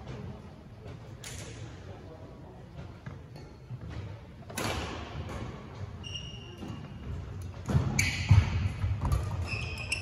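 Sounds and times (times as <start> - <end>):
squeaks of court shoes: 5.8 - 10.0.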